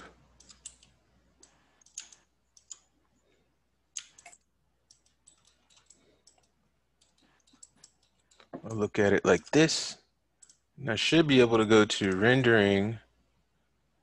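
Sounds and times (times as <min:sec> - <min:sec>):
mouse and keyboard clicks: 0:00.4 - 0:02.9, 0:03.9 - 0:08.6.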